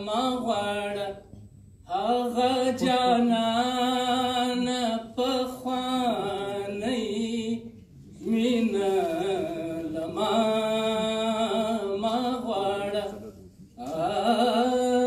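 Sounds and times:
man singing unaccompanied: 0:00.0 - 0:01.3, 0:01.9 - 0:15.0.

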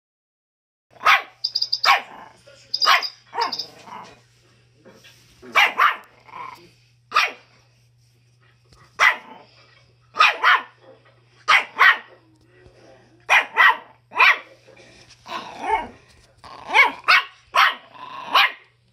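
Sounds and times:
dog barking: 0:01.0 - 0:03.7, 0:05.5 - 0:06.1, 0:07.1 - 0:07.4, 0:09.0 - 0:09.4, 0:10.2 - 0:10.8, 0:11.5 - 0:12.2, 0:13.3 - 0:14.5, 0:16.7 - 0:18.7.

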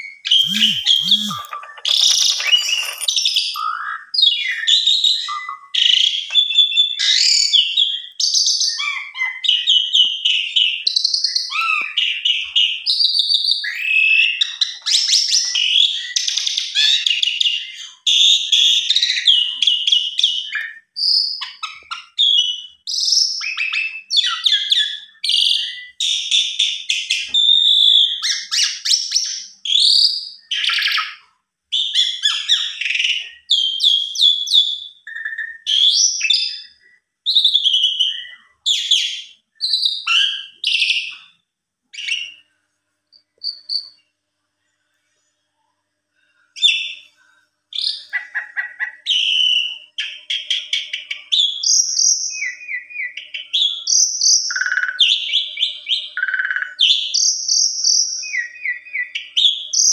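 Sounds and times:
starling singing: 0:00.0 - 0:20.7.

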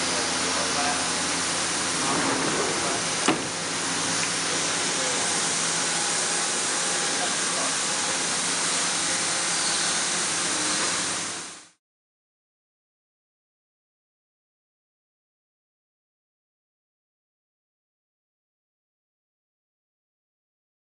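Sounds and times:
low hum of running equipment: 0:00.0 - 0:11.8
machine hiss: 0:00.1 - 0:11.8.

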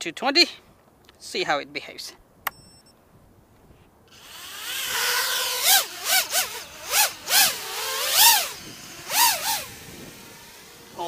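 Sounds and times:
quadcopter propellers whining: 0:04.1 - 0:11.0.

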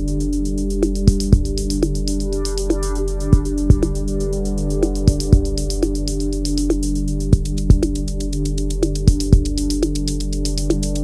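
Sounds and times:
hi-hat ticks: 0:00.0 - 0:11.0
held synth chord: 0:02.2 - 0:05.0.

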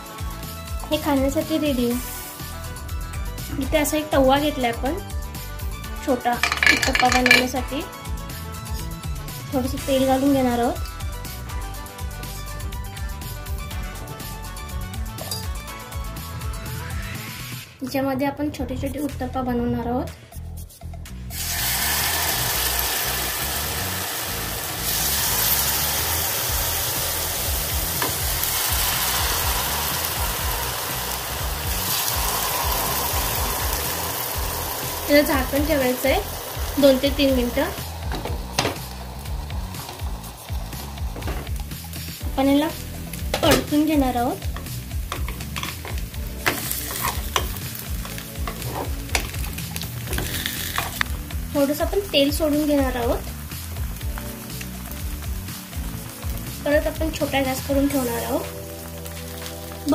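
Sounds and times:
batter sizzling in hot oil: 0:00.0 - 0:17.6, 0:21.3 - 0:59.9
metal spoon scraping pan: 0:06.4 - 0:07.5, 0:45.2 - 0:49.0.

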